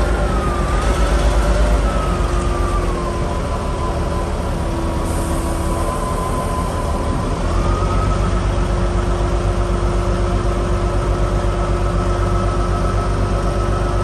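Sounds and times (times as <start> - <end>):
diesel engine running: 0.0 - 14.0.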